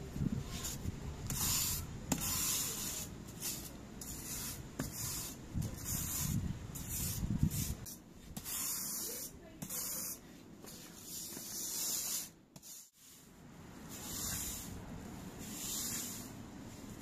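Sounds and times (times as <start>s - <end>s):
wire brush scrubbing concrete: 0.3s - 14.8s, 15.4s - 16.4s.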